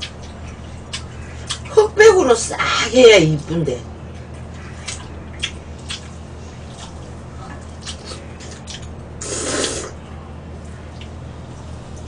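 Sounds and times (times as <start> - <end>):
chewing: 0.0 - 1.7, 4.1 - 10.0
slurping noodles: 9.2 - 10.0.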